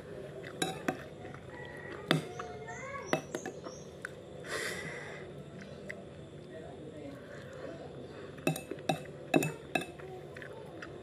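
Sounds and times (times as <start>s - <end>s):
spoon clicking on ceramic bowl: 0.6s - 1.0s, 8.5s - 10.0s.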